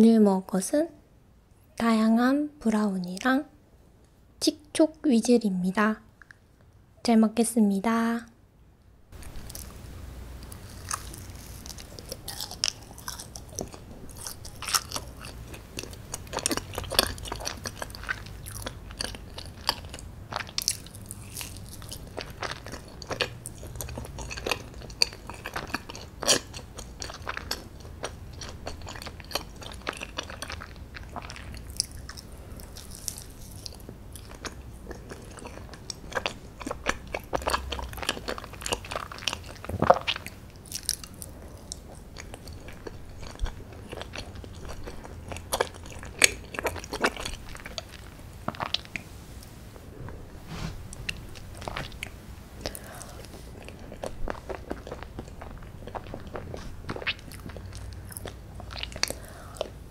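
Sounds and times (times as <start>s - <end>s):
person chewing brownie: 10.4s - 49.0s, 50.9s - 59.9s.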